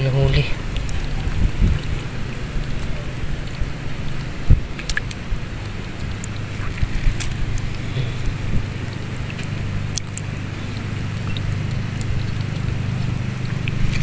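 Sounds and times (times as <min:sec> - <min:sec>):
steady low rumble: 0:00.0 - 0:14.0
hands splashing in shallow water: 0:04.6 - 0:14.0.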